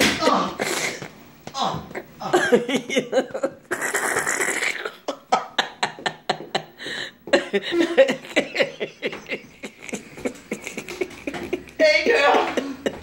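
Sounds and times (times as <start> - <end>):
person stifling laughter: 1.9 - 13.0
hissing breaths: 6.7 - 7.8.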